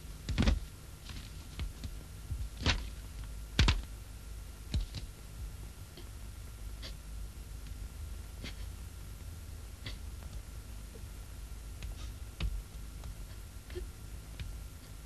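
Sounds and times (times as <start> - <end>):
knocks and thuds: 0.0 - 3.0, 3.6 - 3.9.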